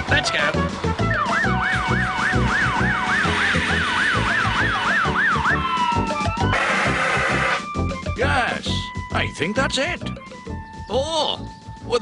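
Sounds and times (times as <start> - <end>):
fire engine siren wailing: 1.0 - 7.7.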